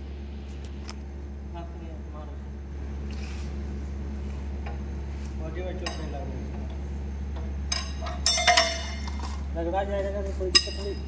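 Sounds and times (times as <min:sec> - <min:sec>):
steady low hum: 0:00.0 - 0:11.0
metallic clinks of parts: 0:07.7 - 0:09.5.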